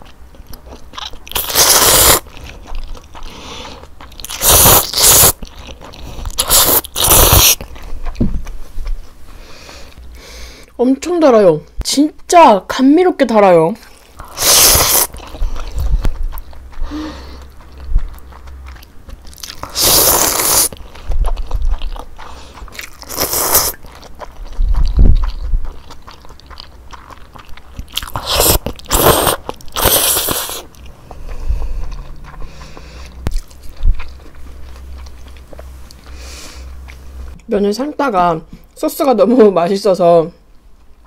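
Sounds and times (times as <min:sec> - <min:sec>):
wet chewing: 0:00.0 - 0:10.8, 0:13.5 - 0:37.8, 0:40.4 - 0:41.0
loud noodle slurping: 0:01.3 - 0:02.3, 0:03.1 - 0:07.7, 0:14.2 - 0:16.0, 0:19.3 - 0:21.0, 0:22.2 - 0:23.8, 0:27.9 - 0:33.4.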